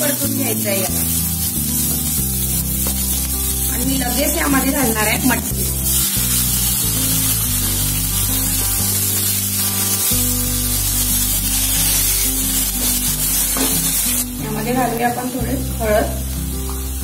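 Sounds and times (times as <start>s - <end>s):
background music: 0.0s - 17.0s
vegetables sizzling in frying pan: 0.0s - 17.0s.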